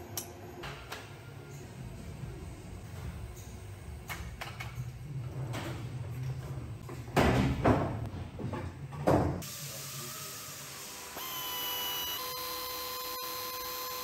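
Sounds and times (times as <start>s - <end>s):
electric clipper whining: 10.1s - 14.0s.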